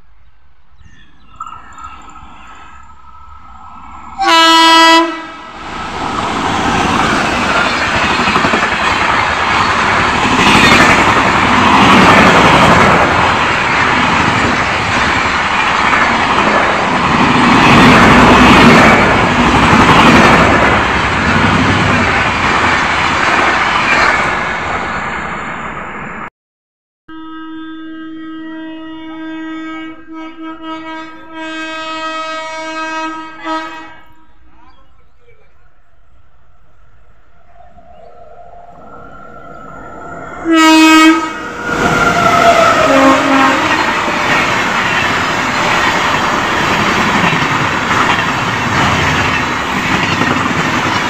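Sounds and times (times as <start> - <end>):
train wheels rushing on rails: 2.7 - 26.0, 37.6 - 51.0
locomotive horn blast: 4.2 - 5.6, 27.1 - 34.5, 40.4 - 44.3.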